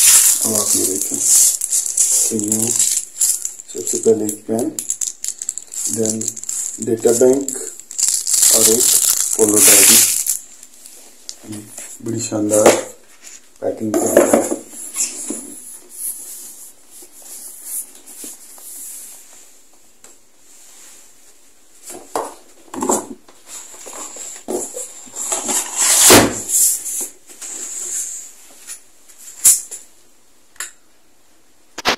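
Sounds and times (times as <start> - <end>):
cardboard and paper rustling: 0.0 - 4.3, 5.0 - 11.6.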